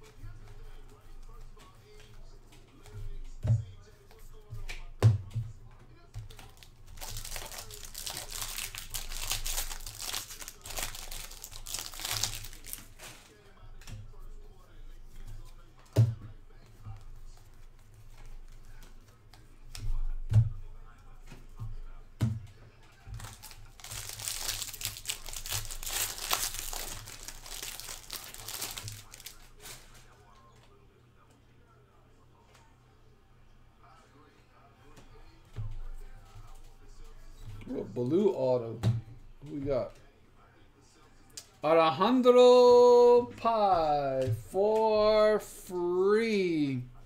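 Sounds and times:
foil wrappers crinkling: 6.3s - 13.4s, 23.1s - 30.2s.

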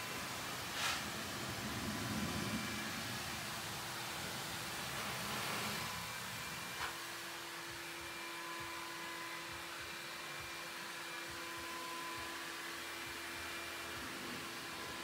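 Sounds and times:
even hiss: 0.0s - 7.9s, 13.4s - 15.0s
steady background hum: 0.0s - 15.0s.

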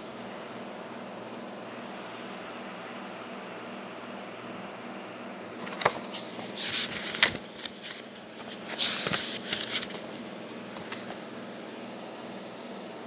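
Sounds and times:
paper rustling: 5.6s - 11.2s.

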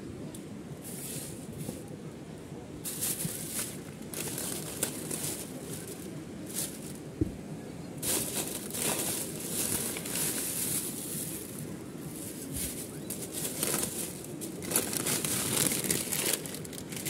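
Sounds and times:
plastic bag rustling: 2.8s - 7.0s, 8.0s - 17.0s.

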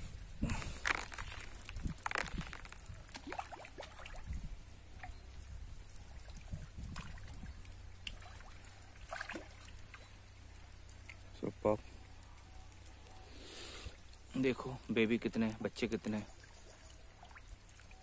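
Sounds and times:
fish splashing at surface: 0.4s - 4.4s, 6.2s - 10.1s.

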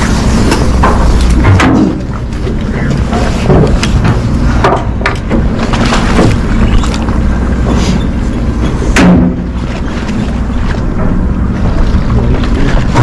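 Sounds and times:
boat engine humming: 0.0s - 13.0s
water noise: 0.0s - 13.0s.

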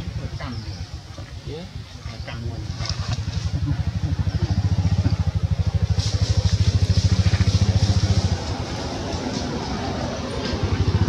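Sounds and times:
small engine running: 2.8s - 11.0s.

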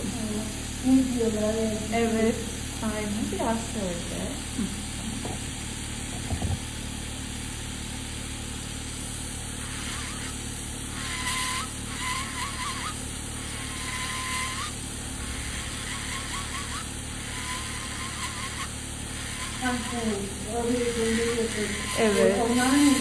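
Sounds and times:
nail drill grinding toenail: 9.5s - 23.0s.

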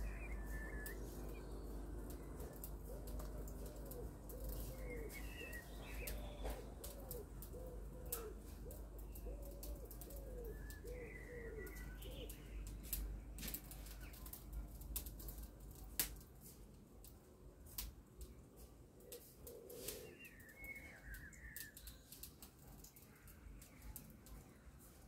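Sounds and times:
pigeon cooing: 0.0s - 12.4s, 19.0s - 21.1s
small birds chirping: 0.0s - 16.0s, 18.6s - 25.0s.

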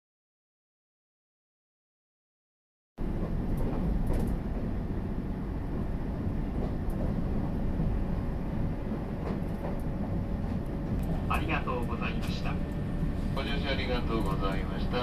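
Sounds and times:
train low rumble: 3.0s - 15.0s.

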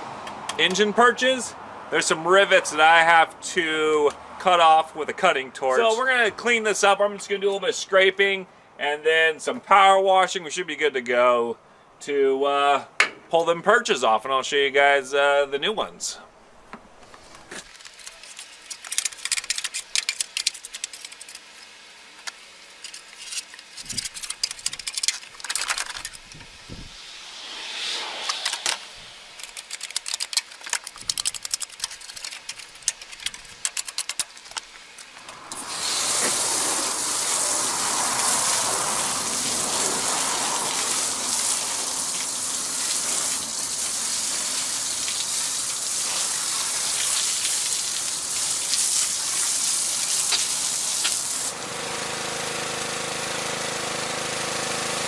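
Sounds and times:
pressure washer spray: 35.3s - 53.6s.

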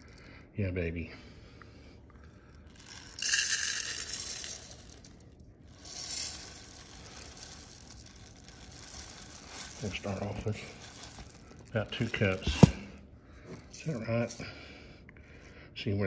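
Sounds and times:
rice pouring into plastic cup: 2.7s - 13.0s.

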